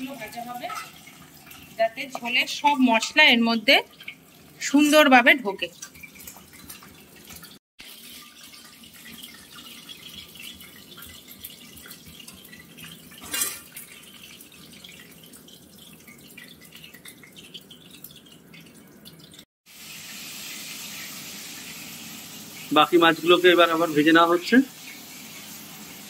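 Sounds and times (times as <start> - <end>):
seafood sizzling in hot oil: 19.7 - 26.0.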